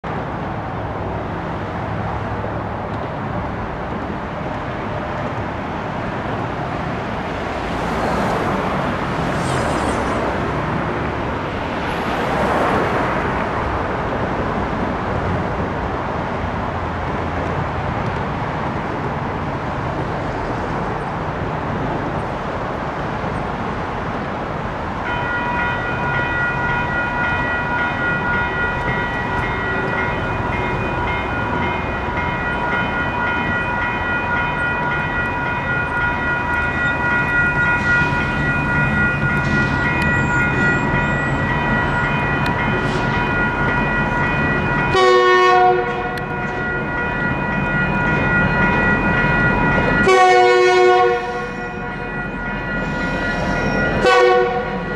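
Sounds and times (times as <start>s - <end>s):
road traffic noise: 0.0s - 54.9s
vehicles passing: 0.1s - 54.9s
railroad crossing bell ringing: 25.0s - 54.9s.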